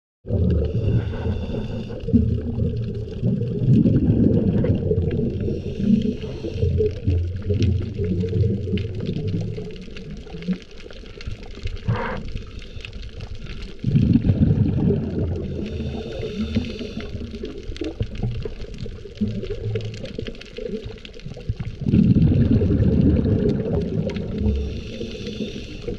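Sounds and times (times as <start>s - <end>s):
exhaled bubbles rumbling underwater: 0.2s - 25.9s
water noise: 0.2s - 25.9s
regulator hissing breaths: 0.7s - 2.0s, 5.4s - 7.0s, 15.6s - 17.4s, 24.4s - 25.9s.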